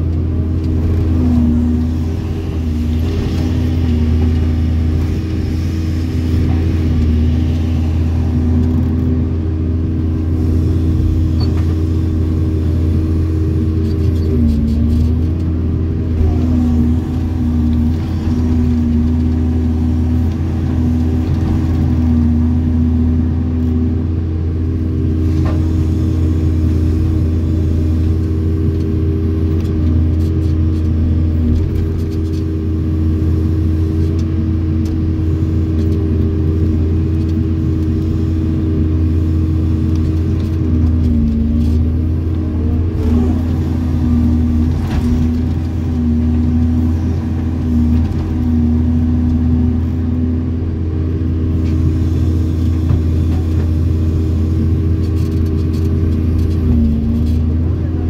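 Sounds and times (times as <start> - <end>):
diesel engine droning: 0.0 - 58.0.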